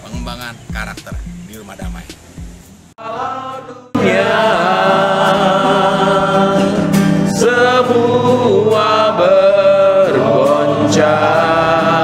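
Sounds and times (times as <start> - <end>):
worship singing: 2.9 - 12.0.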